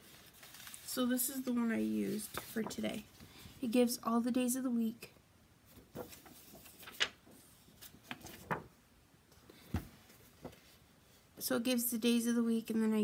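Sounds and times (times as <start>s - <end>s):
plastic sheet rustling and tapping: 5.8s - 7.4s, 8.0s - 8.8s.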